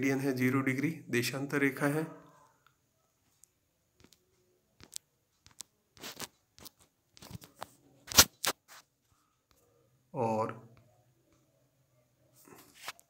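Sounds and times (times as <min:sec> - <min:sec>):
short scrapes and clicks: 0:06.0 - 0:08.9.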